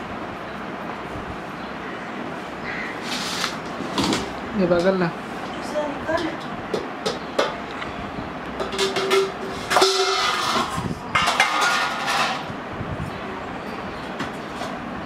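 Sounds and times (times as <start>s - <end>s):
steel cup and plate clinking: 8.6s - 12.4s.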